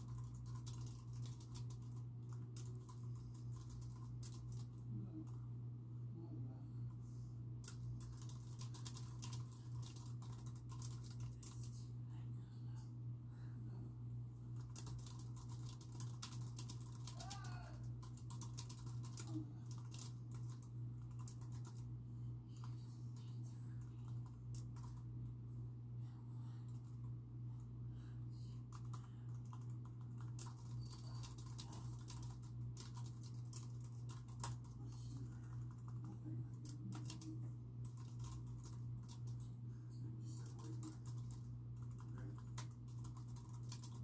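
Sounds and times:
keyboard typing: 0.0s - 5.4s, 7.6s - 11.7s, 14.6s - 21.9s, 22.5s - 25.1s, 28.7s - 39.4s, 40.4s - 44.0s
low hum: 0.0s - 44.0s.

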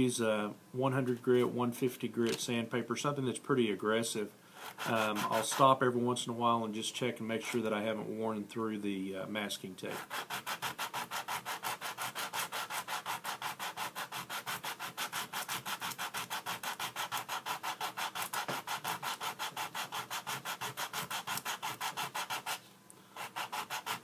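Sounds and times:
sanding sponge rubbing: 4.6s - 5.8s, 9.9s - 22.6s, 23.2s - 24.0s.

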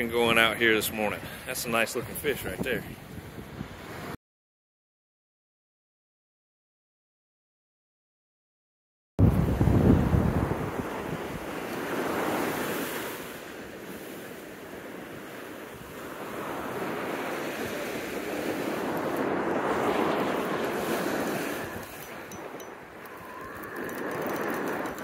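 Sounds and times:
ocean surf breaking: 9.2s - 25.0s.

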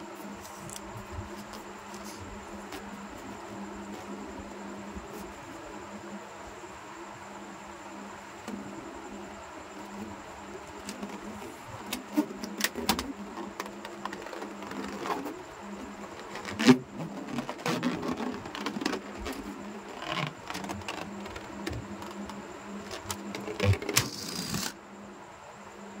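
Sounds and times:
hands rubbing balloons: 0.0s - 5.4s, 10.8s - 24.7s.

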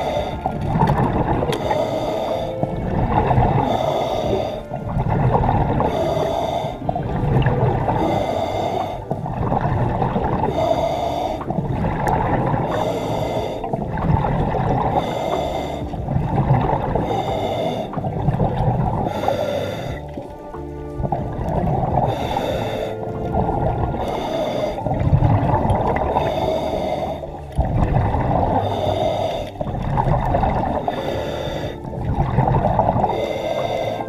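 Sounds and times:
bubbling exhalations: 0.0s - 34.0s
hissing regulator inhalation: 1.5s - 5.1s, 5.7s - 7.2s, 7.8s - 9.5s, 10.3s - 11.8s, 12.6s - 14.0s, 16.9s - 18.2s, 22.0s - 23.1s, 23.8s - 27.6s, 28.5s - 29.8s, 32.5s - 34.0s.

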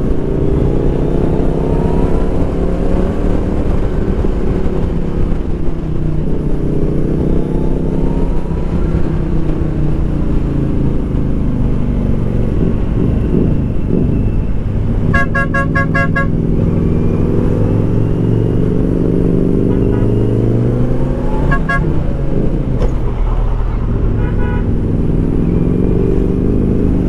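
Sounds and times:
horn short beeps: 15.1s - 16.4s, 19.7s - 20.4s, 21.4s - 22.0s.

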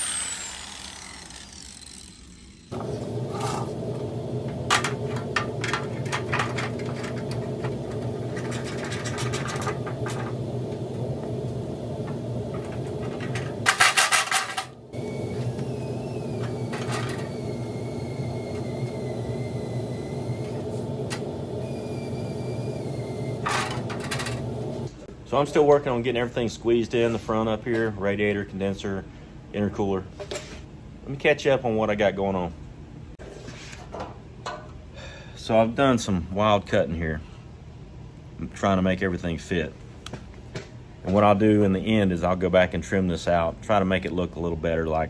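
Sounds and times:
steady machine hum: 0.0s - 25.0s
metal parts clanking and rattling: 4.7s - 10.4s, 12.5s - 14.8s, 23.4s - 24.5s
loud metal clattering: 12.5s - 14.8s.

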